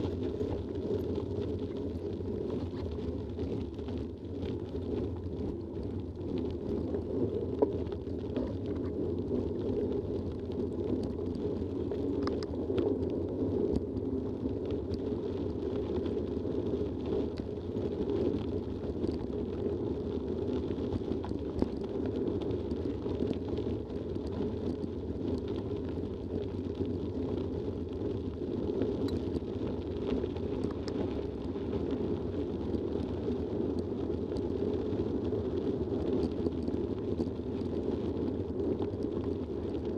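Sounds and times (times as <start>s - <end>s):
bike tyres rumbling on gravel: 0.0s - 39.9s
faint clicks: 12.0s - 12.9s.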